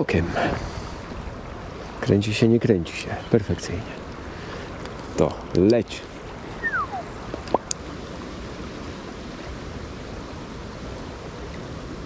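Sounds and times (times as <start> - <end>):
river current rushing: 0.0 - 12.0
short falling whistle: 6.6 - 7.1.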